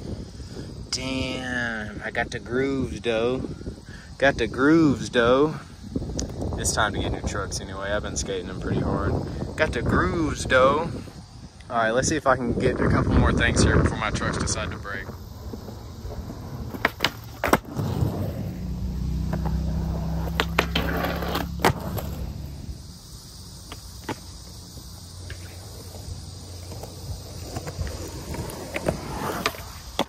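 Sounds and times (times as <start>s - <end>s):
skateboard wheels rolling on concrete: 0.0s - 30.0s
skateboard clacks: 14.4s - 18.3s, 19.2s - 22.2s, 23.7s - 24.3s.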